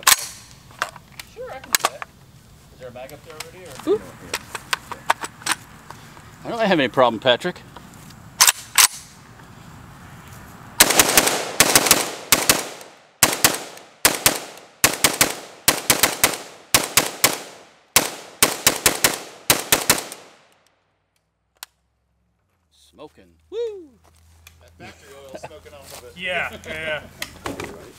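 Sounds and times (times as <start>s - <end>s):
rifle gunshots with echo: 10.8s - 20.5s.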